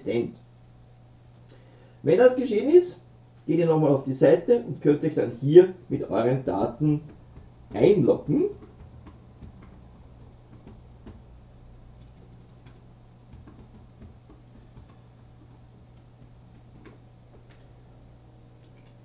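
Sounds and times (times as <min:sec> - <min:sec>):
low steady hum: 0:00.0 - 0:19.0
computer keyboard typing: 0:06.6 - 0:11.3, 0:12.0 - 0:17.7.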